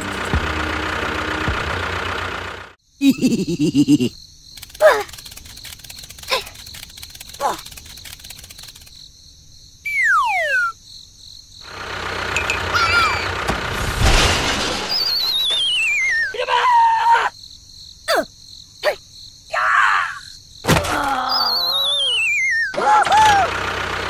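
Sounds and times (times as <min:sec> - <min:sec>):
short squeaks clicks and chirps: 0:04.5 - 0:09.0, 0:21.2 - 0:22.8
cartoon falling whistle: 0:09.9 - 0:10.8, 0:14.9 - 0:16.4, 0:21.2 - 0:23.4
wavering descending whistle: 0:15.0 - 0:16.4, 0:21.3 - 0:22.8.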